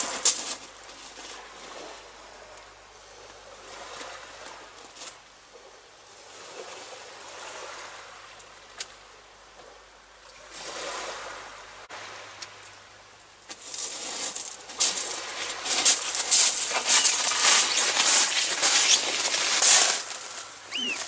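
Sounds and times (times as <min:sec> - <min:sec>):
sea waves on shore: 0:00.0 - 0:05.2, 0:06.0 - 0:09.4, 0:10.2 - 0:21.0
clothing rustling and crackling: 0:13.6 - 0:21.0.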